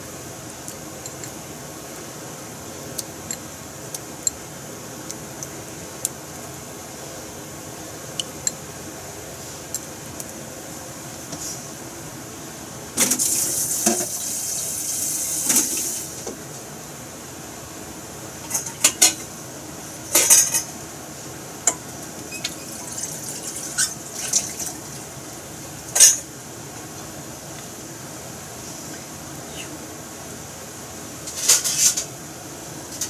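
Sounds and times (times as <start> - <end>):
oil popping and crackling: 5.0 - 6.7, 21.8 - 25.1
chicken skin sizzling in oil: 13.0 - 16.2.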